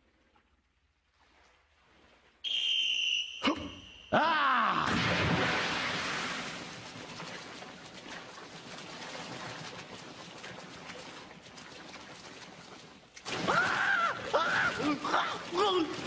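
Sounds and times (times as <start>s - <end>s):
voice crying out and gasping: 3.4s - 4.9s, 13.5s - 16.0s.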